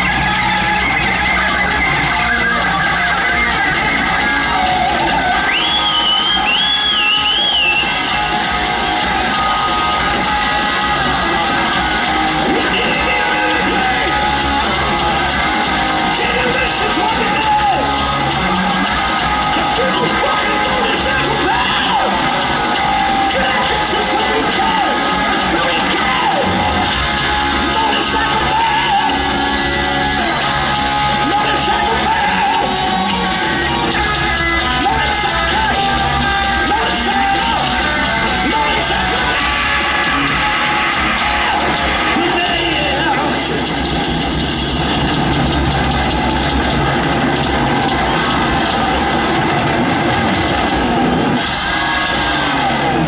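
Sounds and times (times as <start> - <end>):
bass: 0.0 - 53.0
distorted electric guitars: 0.0 - 53.0
drums: 0.0 - 53.0
man singing: 12.5 - 14.6, 27.6 - 32.9, 34.7 - 37.8.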